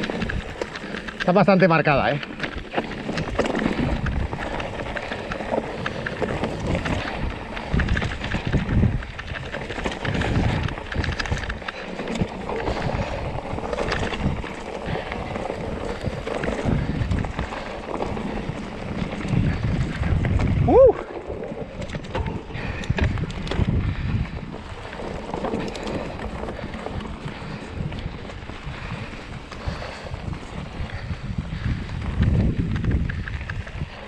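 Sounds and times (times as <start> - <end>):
bike rattling and clattering: 0.0 - 34.0
tyres crunching over stones: 0.0 - 34.0
wind rushing over microphone: 0.0 - 34.0.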